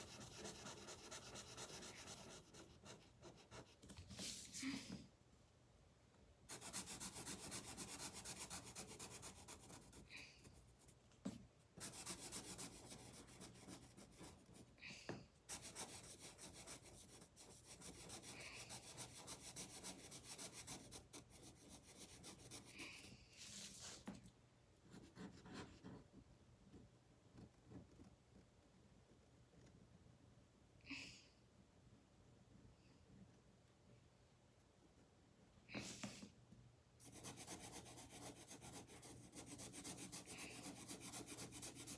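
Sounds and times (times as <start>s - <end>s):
felt-tip marker scratching on paper: 0.0s - 4.5s, 6.5s - 10.1s, 11.2s - 14.7s, 15.5s - 24.0s, 37.0s - 41.9s.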